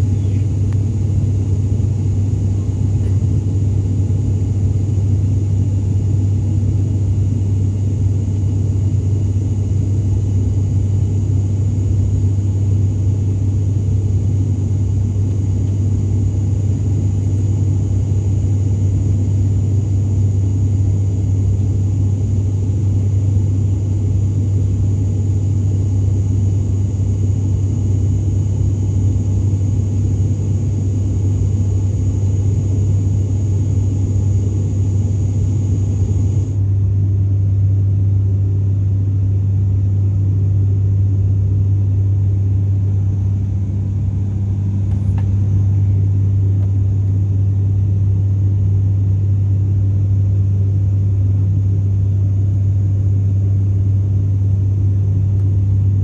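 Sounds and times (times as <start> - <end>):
turboprop cabin drone: 0.0 - 56.0
faint high whine: 26.8 - 36.9.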